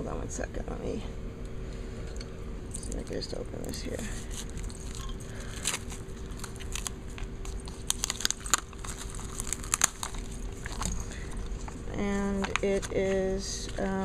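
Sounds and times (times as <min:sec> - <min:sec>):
plastic packaging crinkling: 0:03.7 - 0:13.9.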